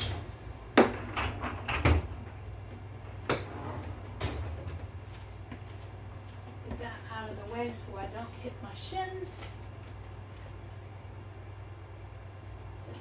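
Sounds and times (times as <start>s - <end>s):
dishwasher racks clattering: 3.4s - 5.0s.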